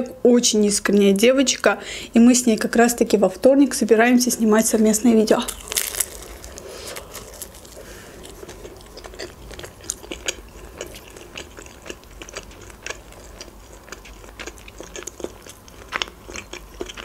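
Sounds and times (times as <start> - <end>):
person chewing food: 5.5 - 17.0.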